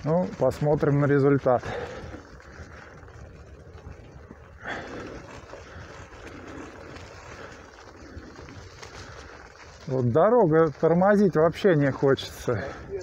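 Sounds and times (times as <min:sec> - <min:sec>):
bike tyres crunching leaves: 0:00.0 - 0:13.0.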